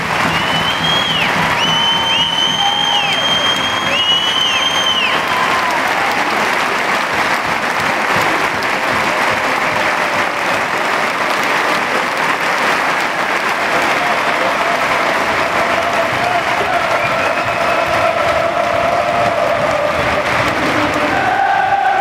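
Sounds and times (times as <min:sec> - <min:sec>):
stadium crowd applauding: 0:00.0 - 0:22.0.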